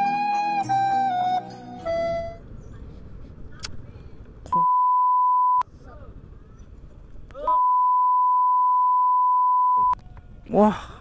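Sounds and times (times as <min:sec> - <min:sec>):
faint street noise: 0:01.4 - 0:04.7, 0:05.6 - 0:07.7
censor bleep tone: 0:04.6 - 0:05.6, 0:07.5 - 0:10.0.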